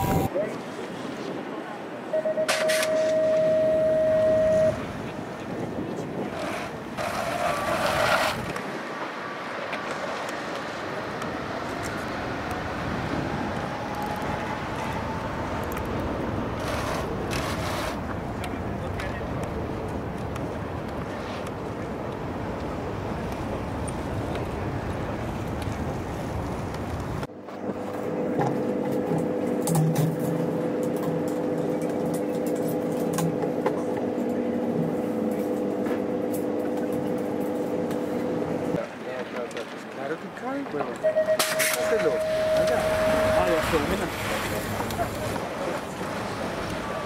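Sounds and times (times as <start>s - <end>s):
steady mechanical hum: 10.9s - 38.9s
elevated train passing: 41.8s - 47.0s.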